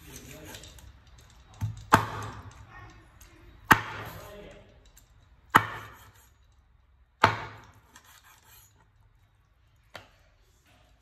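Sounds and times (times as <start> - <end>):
cleaver chopping on wooden board: 1.6 - 2.4, 3.7 - 4.2, 5.5 - 6.2, 7.2 - 8.0.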